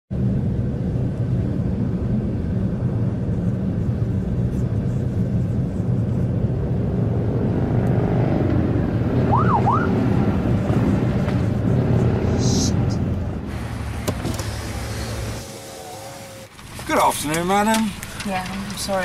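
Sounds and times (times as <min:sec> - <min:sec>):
car cabin road and engine drone: 0:00.1 - 0:19.0
siren wail: 0:09.2 - 0:10.3.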